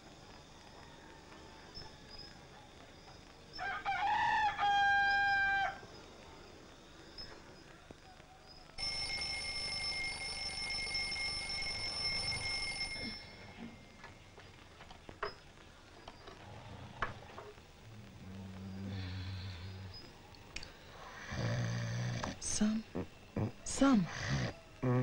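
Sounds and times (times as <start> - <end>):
alarm clock bell ringing: 8.8 - 14.0
faint clicks: 14.0 - 20.8
person snoring: 18.2 - 20.0, 21.1 - 22.4.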